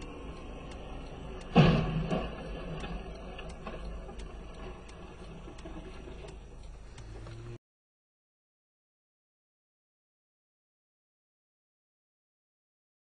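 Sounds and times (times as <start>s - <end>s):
vehicle crash: 1.5s - 6.3s.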